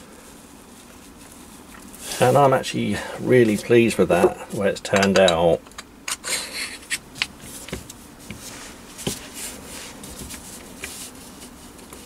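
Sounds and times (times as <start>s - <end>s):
soft rubbing: 0.0s - 4.6s, 7.3s - 12.0s.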